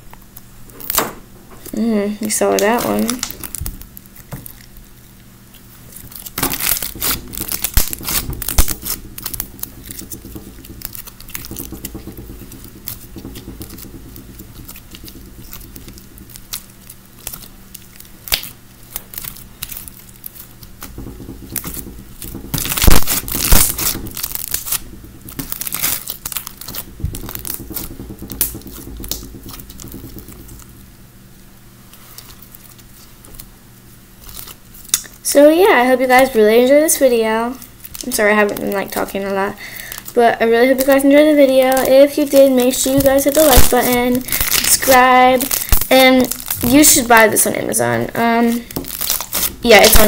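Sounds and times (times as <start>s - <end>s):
slime squished by hand: 2.5s - 30.9s, 40.8s - 47.3s, 48.4s - 50.0s.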